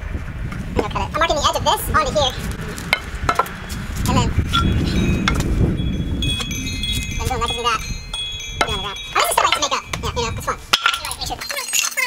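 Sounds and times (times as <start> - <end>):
low rumble: 0.0 - 11.4
wind chime ringing: 4.5 - 12.0.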